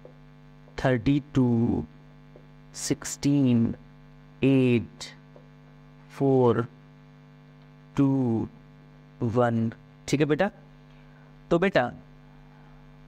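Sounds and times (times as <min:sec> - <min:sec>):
electrical mains hum: 0:00.0 - 0:13.0
man calling out: 0:08.0 - 0:08.6.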